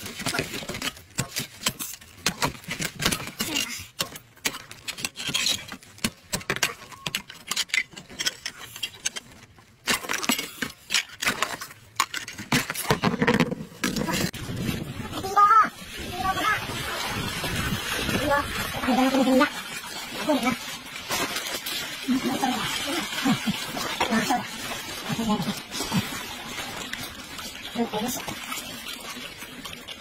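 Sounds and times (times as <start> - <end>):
hard objects clicking and knocking: 0.1 - 14.4.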